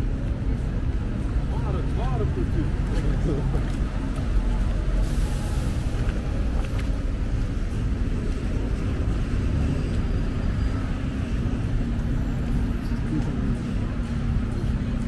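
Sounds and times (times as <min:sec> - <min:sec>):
cars passing with low rumble: 0:00.0 - 0:15.0.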